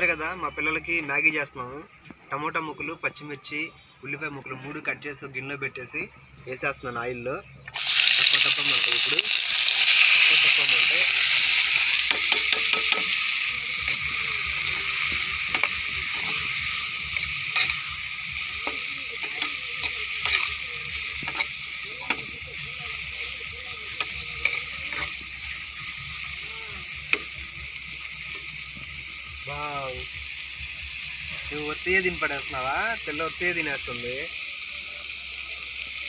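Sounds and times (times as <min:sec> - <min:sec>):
vegetables sizzling in a pan: 0:07.8 - 0:36.0.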